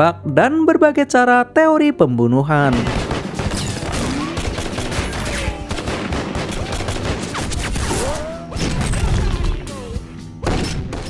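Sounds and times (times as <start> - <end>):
rapid gunshots: 2.7 - 9.6, 10.4 - 11.0.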